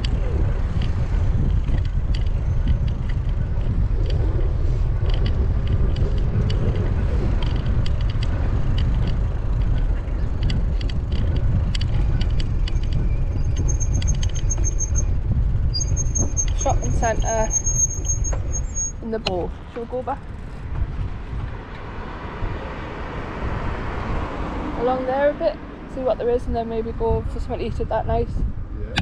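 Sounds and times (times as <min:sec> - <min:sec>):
bicycle clicks and rattles: 0:00.0 - 0:15.1, 0:19.6 - 0:21.9
wind buffeting microphone: 0:00.0 - 0:29.0
high-pitched squeal: 0:12.7 - 0:15.1, 0:15.8 - 0:19.1.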